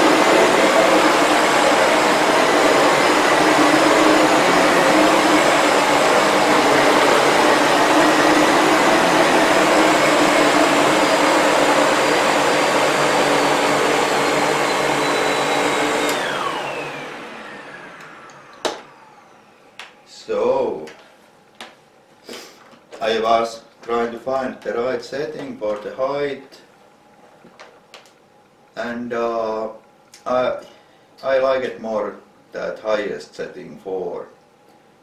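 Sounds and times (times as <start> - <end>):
vacuum motor spinning down: 0.0 - 19.8
vacuum cleaner whine: 0.0 - 20.9.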